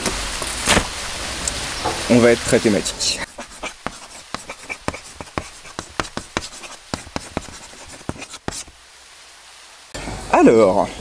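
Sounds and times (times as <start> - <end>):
chalk writing on hard surface: 3.3 - 8.8.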